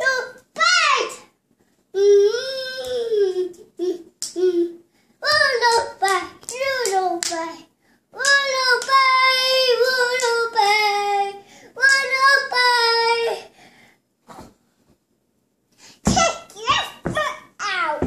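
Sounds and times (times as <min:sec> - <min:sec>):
girl singing in a high voice: 0:02.0 - 0:07.6, 0:08.2 - 0:13.4.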